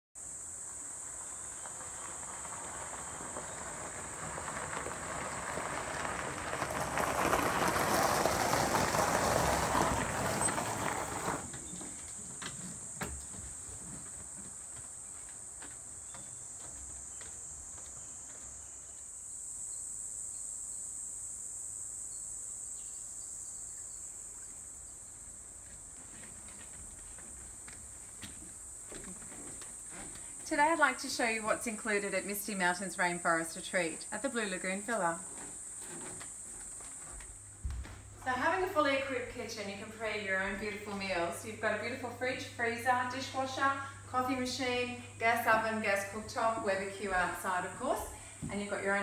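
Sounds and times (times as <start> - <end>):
insects droning: 0.2 - 49.0.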